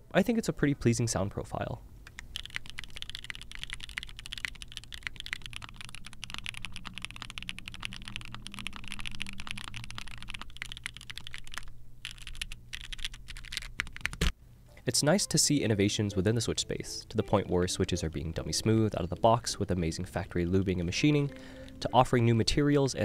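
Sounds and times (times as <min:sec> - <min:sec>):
mechanical keyboard typing: 0:02.1 - 0:14.3.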